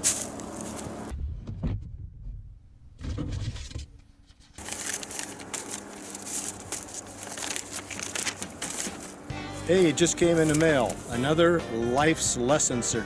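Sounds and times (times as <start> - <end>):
paper rustling: 0.0 - 1.1, 3.0 - 11.3.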